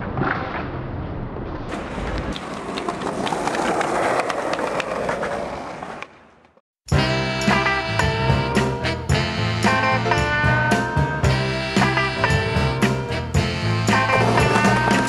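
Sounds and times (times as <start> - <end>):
skateboard wheels rolling: 1.3 - 6.6, 13.8 - 15.0
music with steady beat: 6.9 - 15.0.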